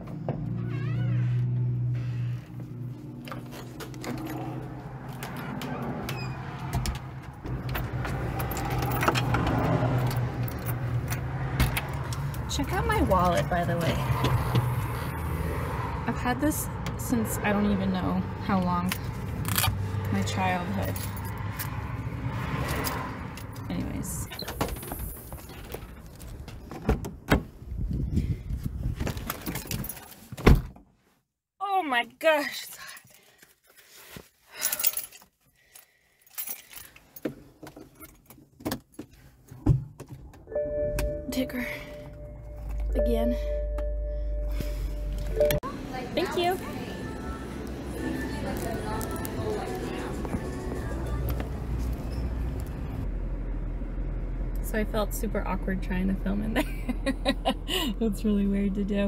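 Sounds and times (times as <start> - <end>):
keys jangling: 36.3 - 37.1.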